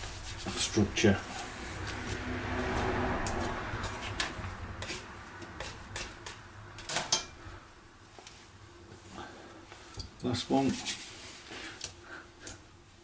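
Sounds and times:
hands kneading bread dough: 0:00.0 - 0:06.6.

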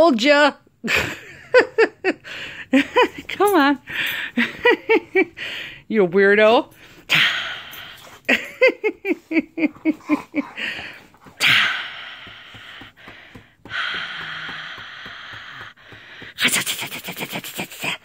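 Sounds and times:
dog huffing and snorting: 0:09.0 - 0:11.7
dog grunting: 0:09.7 - 0:13.0.

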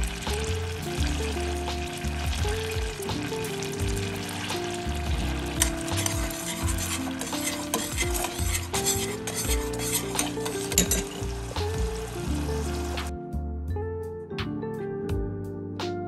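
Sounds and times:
sauce sizzling in saucepan: 0:00.0 - 0:13.1
metal spoon clicking against pan: 0:05.6 - 0:11.2.

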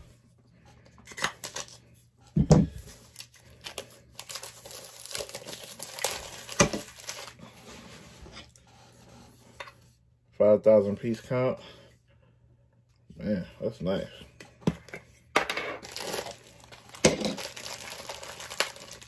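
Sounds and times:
packaging tearing: 0:01.1 - 0:01.8, 0:03.0 - 0:07.4, 0:15.8 - 0:19.0
plastic crinkling: 0:02.9 - 0:07.8, 0:15.8 - 0:19.0.

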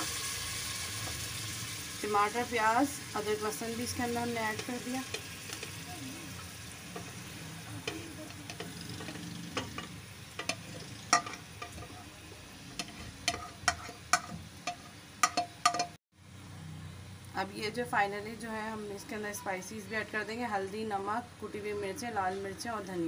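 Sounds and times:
oil sizzling in a pot: 0:00.0 - 0:16.0
sharp clinks against a pot: 0:07.8 - 0:12.1, 0:12.8 - 0:16.0.

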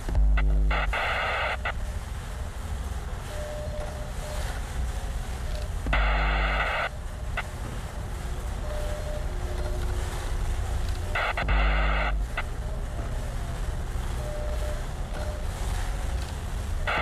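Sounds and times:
loud buzzing tone: 0:00.0 - 0:02.1, 0:05.9 - 0:07.6, 0:08.4 - 0:15.6, 0:16.8 - 0:17.0
low rumble: 0:00.0 - 0:17.0.

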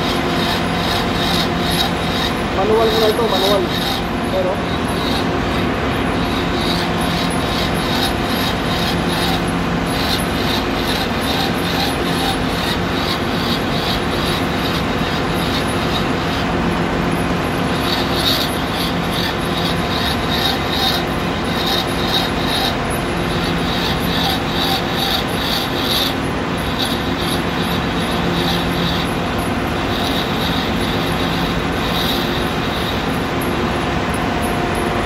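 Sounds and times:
metal lathe humming: 0:00.0 - 0:35.0.

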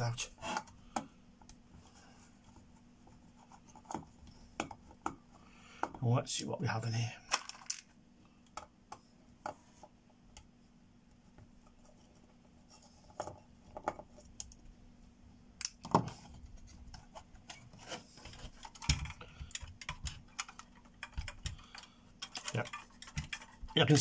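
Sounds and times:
computer parts handled on bench: 0:07.3 - 0:07.9, 0:15.6 - 0:23.8.

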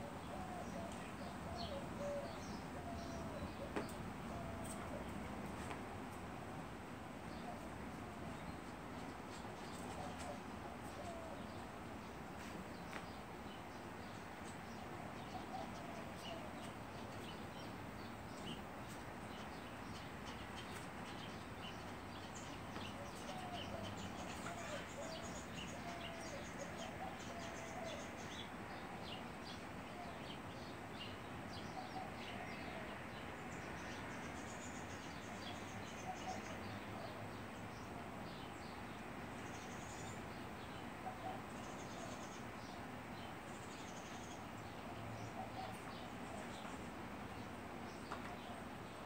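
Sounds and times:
low wavering bird calls: 0:00.0 - 0:05.4, 0:14.8 - 0:17.5, 0:19.4 - 0:29.0, 0:35.9 - 0:38.0, 0:39.6 - 0:42.8.

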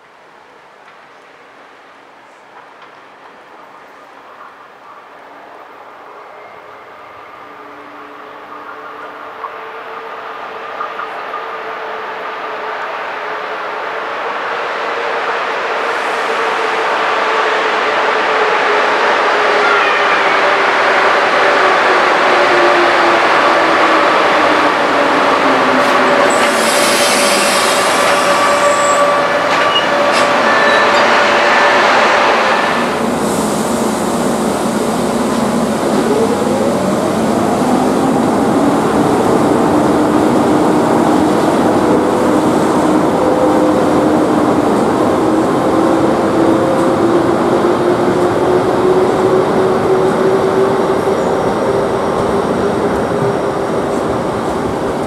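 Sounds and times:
train rail noise: 0:00.0 - 0:55.0
hiss: 0:25.8 - 0:29.0, 0:32.9 - 0:35.4.

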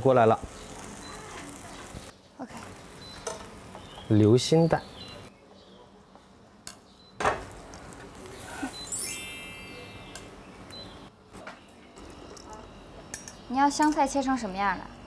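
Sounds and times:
short high ringing tone: 0:08.8 - 0:10.3.

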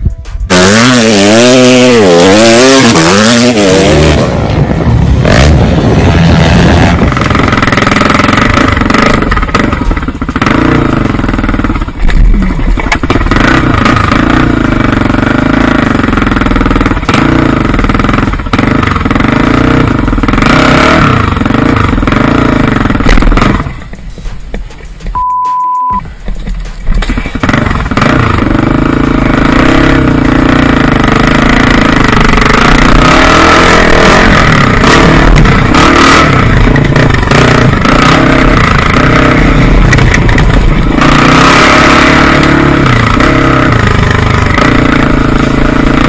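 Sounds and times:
dirt bike engine revving: 0:00.4 - 0:24.0, 0:25.8 - 0:46.0.

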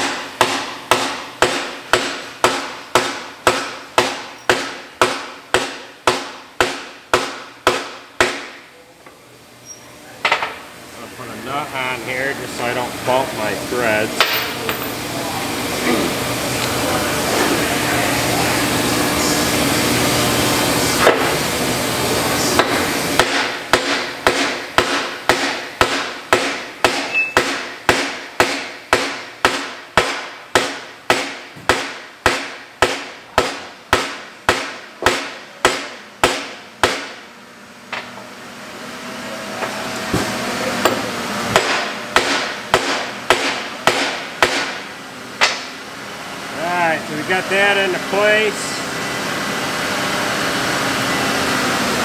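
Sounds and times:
hammer strikes on metal: 0:00.0 - 0:08.6, 0:22.6 - 0:37.2, 0:40.2 - 0:45.7
steady background noise: 0:00.0 - 0:52.0.

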